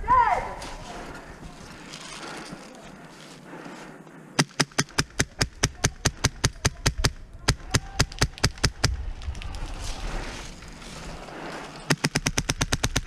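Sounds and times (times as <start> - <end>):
airsoft rifle shots: 4.4 - 9.0, 11.9 - 13.0.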